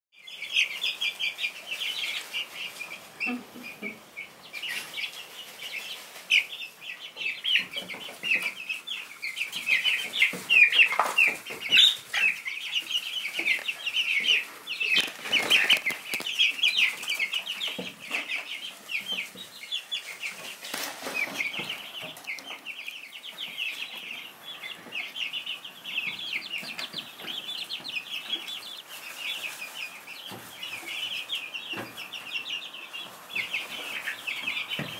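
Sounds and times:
chicks peeping: 0:00.2 - 0:34.9
rustles and scuffles: 0:13.4 - 0:17.2, 0:20.1 - 0:21.8.

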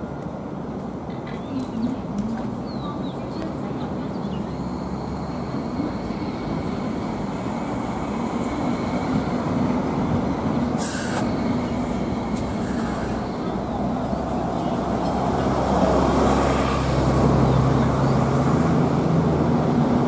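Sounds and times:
light rail car wheels rumbling: 0:00.0 - 0:20.0
brief hiss: 0:10.8 - 0:11.4.

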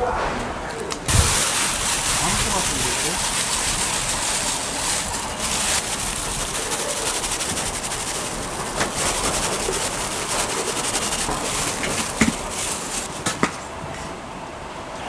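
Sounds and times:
food deep-frying in oil: 0:01.1 - 0:13.3.

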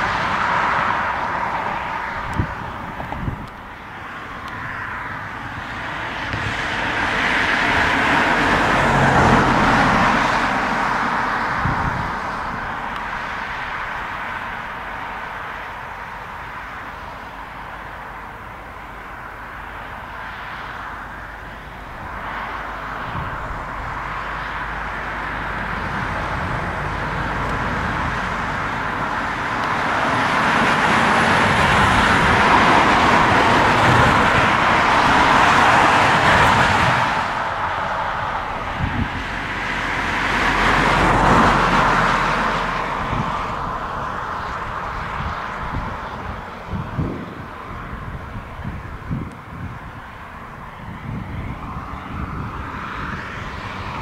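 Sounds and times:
jet engine roar: 0:21.7 - 0:54.0.

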